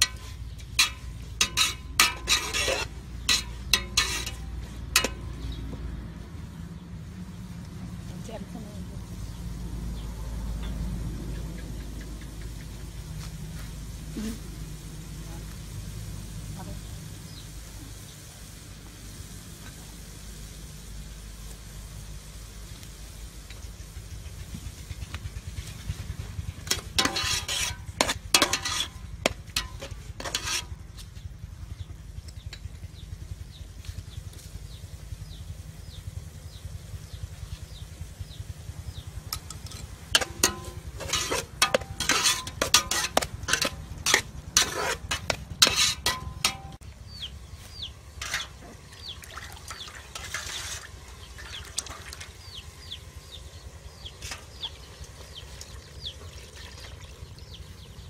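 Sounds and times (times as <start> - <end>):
ladle clinking against pot: 0.0 - 4.4, 39.4 - 46.8
metal ladle scraping pot: 0.0 - 5.6, 26.6 - 30.8, 39.3 - 46.8, 48.2 - 49.0, 49.6 - 52.3
low steady rumble: 0.0 - 58.0.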